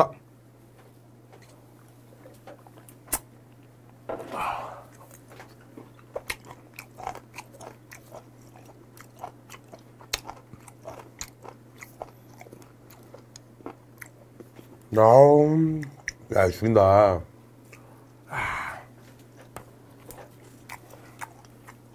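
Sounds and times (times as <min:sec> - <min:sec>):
chewing food: 0:01.3 - 0:04.0, 0:04.9 - 0:14.9, 0:15.8 - 0:16.3, 0:19.0 - 0:21.9.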